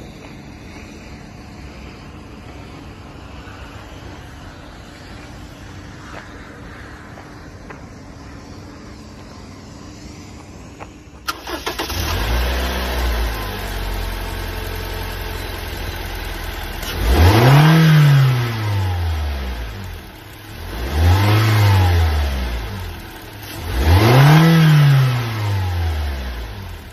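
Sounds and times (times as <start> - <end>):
petrol engine starting and revving: 11.2 - 26.9.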